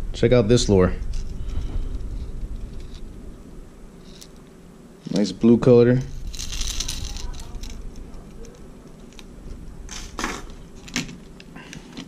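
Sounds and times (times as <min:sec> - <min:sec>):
fishing tackle rustling: 0:06.0 - 0:12.0.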